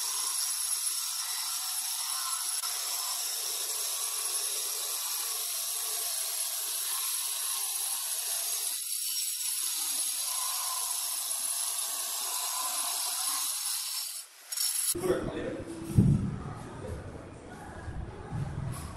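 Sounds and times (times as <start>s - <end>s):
stone cutter grinding whine: 0.0s - 15.0s.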